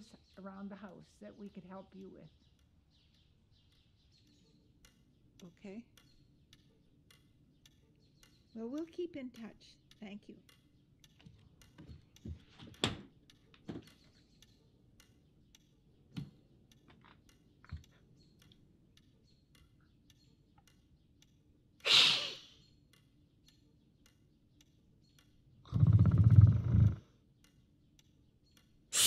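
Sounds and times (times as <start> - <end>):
faint ticks and small knocks: 0.0 - 21.8, 22.6 - 28.9
door shutting with latch knock: 12.8 - 13.1.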